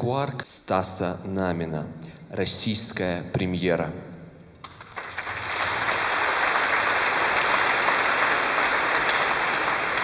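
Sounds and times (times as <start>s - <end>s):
audience applauding: 4.6s - 10.0s.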